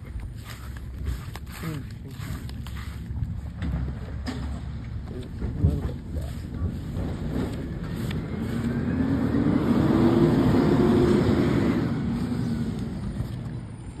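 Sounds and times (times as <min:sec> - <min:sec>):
truck engine driving past: 0:03.4 - 0:14.0.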